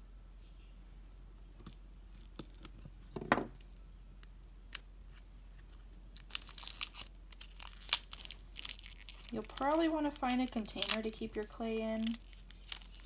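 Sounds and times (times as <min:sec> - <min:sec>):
thump: 0:03.2 - 0:03.5
knife scraping cellophane: 0:05.1 - 0:13.0.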